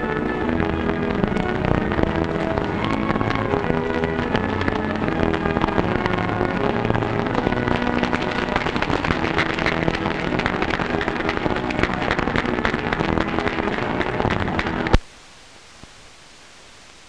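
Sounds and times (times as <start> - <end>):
band music: 0.0 - 15.0
film soundtrack crackle and hiss: 0.0 - 17.0.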